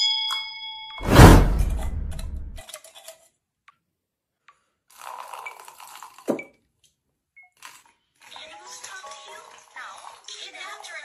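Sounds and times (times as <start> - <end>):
loud hit with rumbling tail: 1.0 - 2.6
short thud: 1.0 - 2.6
liquid pouring into plastic cup: 4.9 - 6.5.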